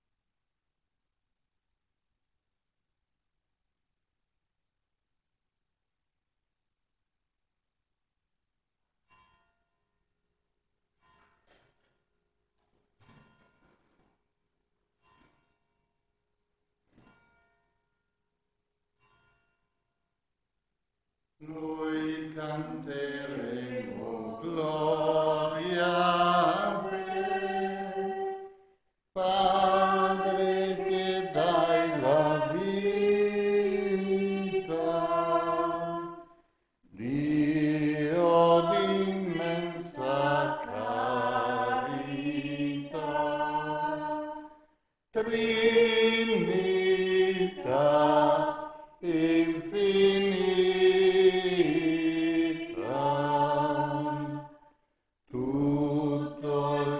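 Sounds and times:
congregation singing a hymn: 21.4 - 28.5, 29.2 - 36.3, 37.0 - 44.5, 45.2 - 54.5, 55.3 - 56.9.

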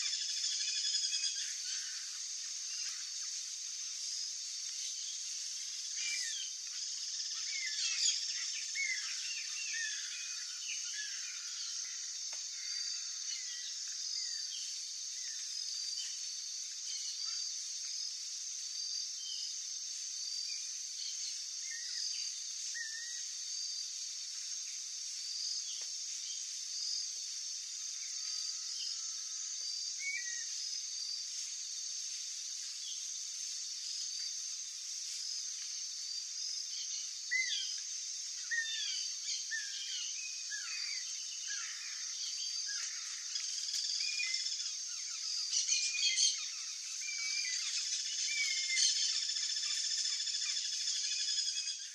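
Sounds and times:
small birds chirping and whistling: 0.0 - 3.1, 5.9 - 11.2, 38.4 - 51.9
insects droning: 0.0 - 51.9.

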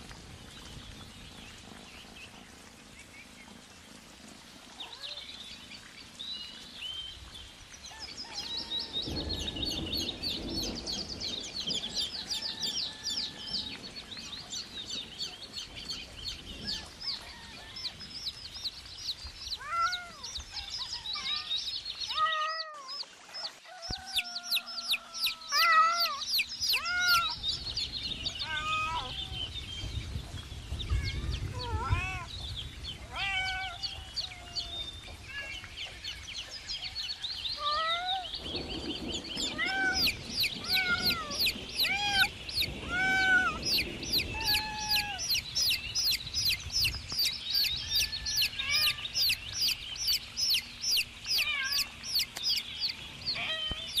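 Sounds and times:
chicks peeping: 22.9 - 27.9, 39.7 - 54.0.

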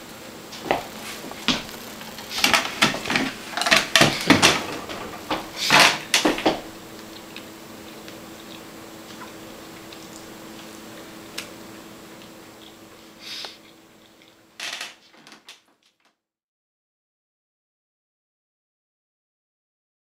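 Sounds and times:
kitchen knocks and clatters: 0.6 - 6.7.

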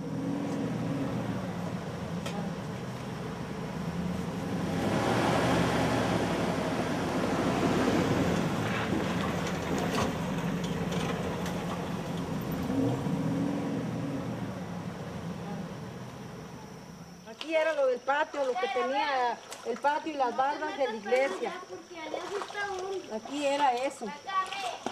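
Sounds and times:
pickup truck engine: 0.0 - 17.2.

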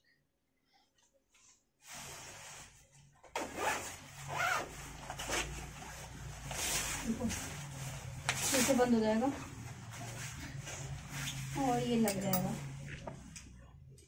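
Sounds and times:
fabric rustling: 1.1 - 13.4
zipper strokes: 1.8 - 11.9.

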